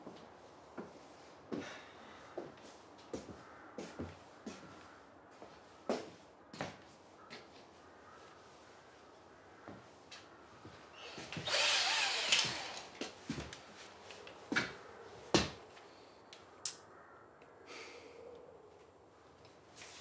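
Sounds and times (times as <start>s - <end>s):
power drill spinning: 11.0s - 13.1s.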